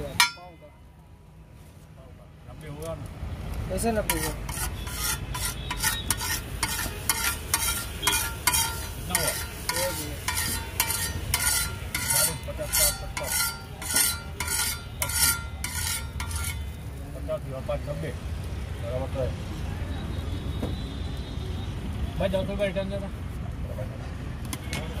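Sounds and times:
metal spatula scraping griddle: 3.9s - 16.8s.

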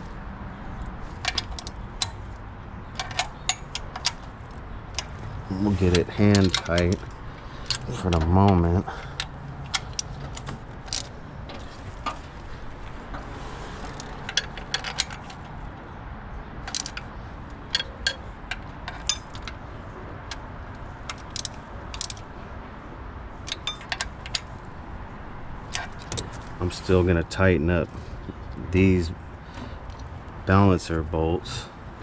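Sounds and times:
ratchet clicks and clinks: 20.3s - 22.3s, 23.4s - 24.6s.

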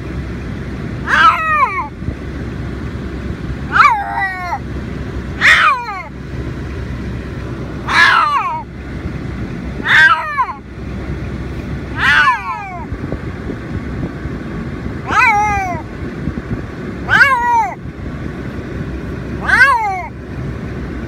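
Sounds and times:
steady low rumble: 0.0s - 21.0s
cat screaming: 1.0s - 1.9s, 3.7s - 4.6s, 5.4s - 6.1s, 7.8s - 8.7s, 9.8s - 10.6s, 11.9s - 12.9s, 15.0s - 15.9s, 17.0s - 17.8s, 19.4s - 20.2s.

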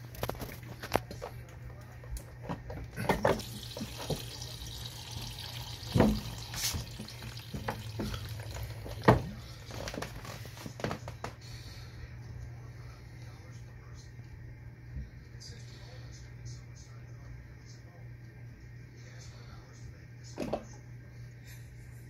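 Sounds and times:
water gurgling: 3.2s - 9.2s.

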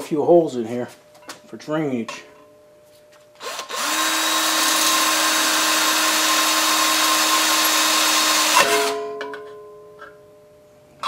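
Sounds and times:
electric drill boring sheet metal: 3.4s - 9.0s.

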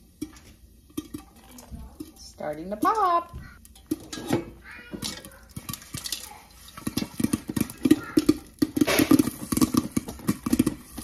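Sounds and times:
popcorn popping: 0.0s - 11.0s
pan rattling on stove grate: 0.1s - 11.0s.

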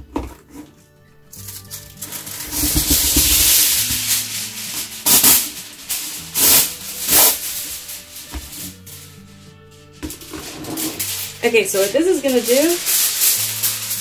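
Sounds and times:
sharp loud foil crinkles: 1.3s - 9.4s, 10.1s - 14.0s
aluminum foil crinkling: 1.3s - 9.5s, 10.1s - 14.0s.

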